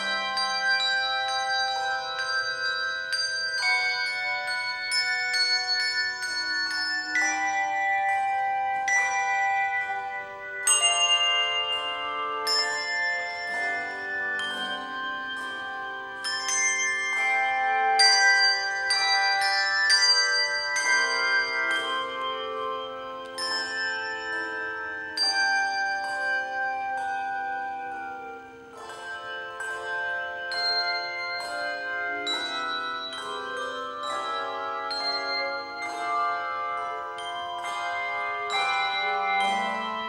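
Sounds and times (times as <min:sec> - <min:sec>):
handbell choir ringing melody: 0:00.0 - 0:40.0.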